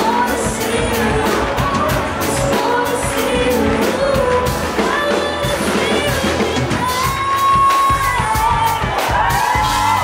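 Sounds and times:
band singing with guitar and drums: 0.0 - 10.0.

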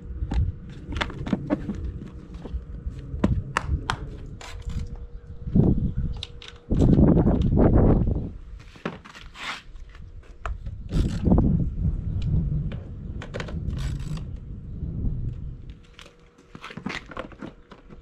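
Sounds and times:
low rumble: 0.0 - 8.5, 10.9 - 15.8
plastic clicks knocks and scraping: 15.8 - 18.0.

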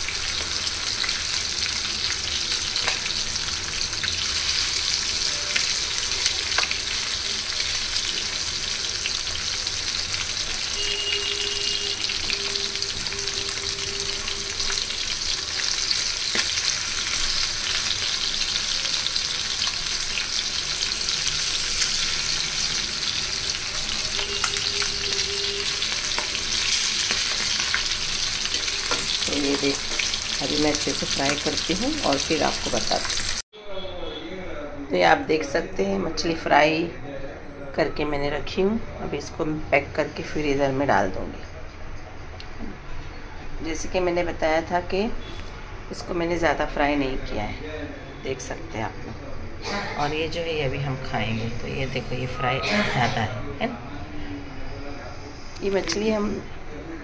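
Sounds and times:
fish sizzling in hot oil: 0.0 - 33.4.

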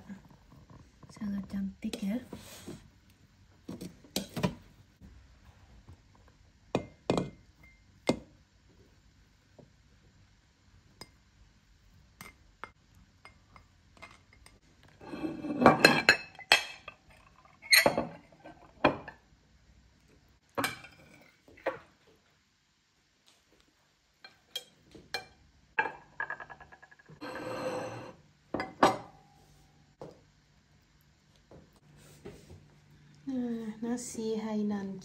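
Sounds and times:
ceramic dishes clinking: 13.3 - 19.2, 20.6 - 21.3, 24.3 - 29.2.

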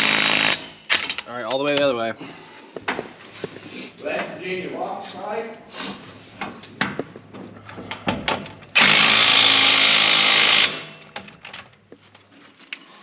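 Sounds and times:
power tool driving bolt: 7.8 - 11.3.

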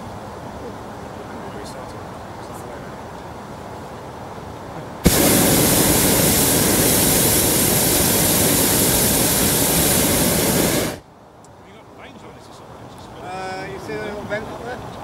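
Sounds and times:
propane burner firing: 5.0 - 11.0.

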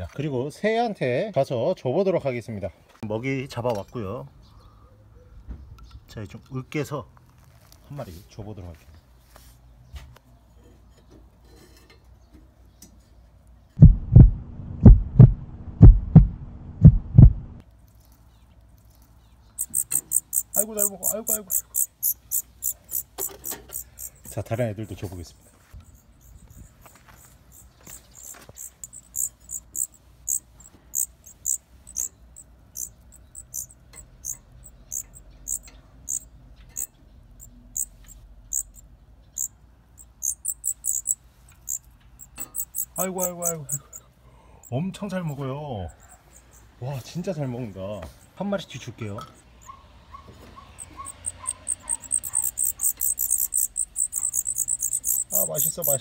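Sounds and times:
heartbeat thumps: 13.8 - 17.6
low hum: 13.8 - 17.6
nestling birds cheeping: 18.0 - 25.0, 25.8 - 56.0.

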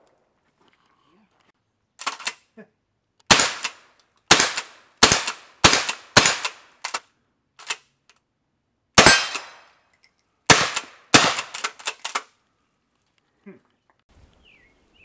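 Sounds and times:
suppressed shotgun shots: 3.3 - 7.0, 9.0 - 9.6, 10.5 - 12.2.

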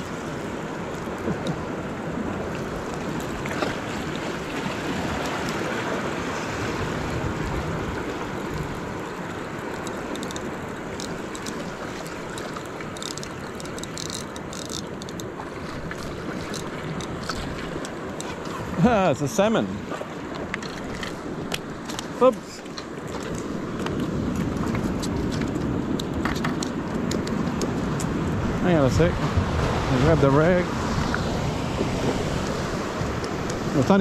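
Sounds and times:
wind on microphone: 0.0 - 14.6, 23.0 - 34.0
sea surf against rocks: 0.0 - 34.0.

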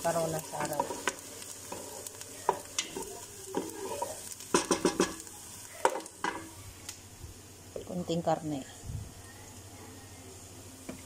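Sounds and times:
garlic sizzling in hot oil: 0.0 - 9.7
wooden spoon knocking against pot: 4.5 - 5.2.

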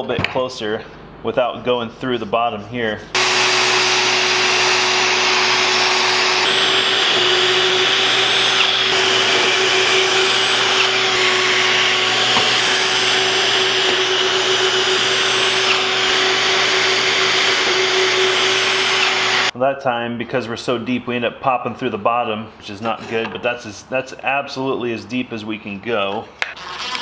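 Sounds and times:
shop vacuum running: 3.1 - 19.5
drill boring into plywood: 3.2 - 19.5, 26.6 - 27.0.

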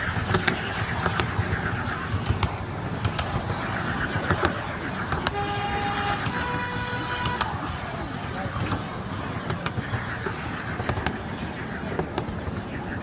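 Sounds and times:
miniature train rumbling: 0.0 - 13.0
wheels clicking on track: 0.0 - 13.0
two-note locomotive horn: 5.2 - 7.5.

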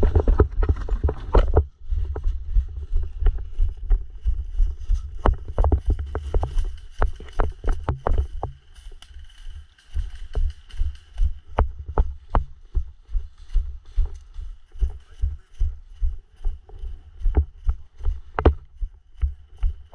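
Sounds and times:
heavy footsteps: 0.0 - 19.9
rustling brush and gear: 0.0 - 19.9.

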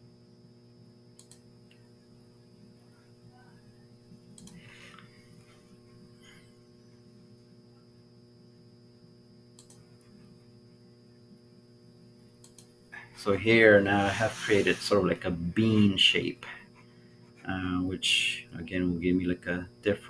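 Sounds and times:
faint electrical mains hum: 0.0 - 20.0
computer mouse clicks: 1.2 - 1.4, 4.4 - 4.6, 9.6 - 9.9, 12.4 - 12.7.

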